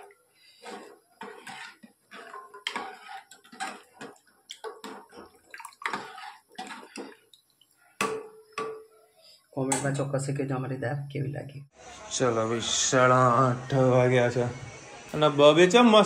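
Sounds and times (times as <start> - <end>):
thick liquid bubbling in a pot: 0.0 - 9.4.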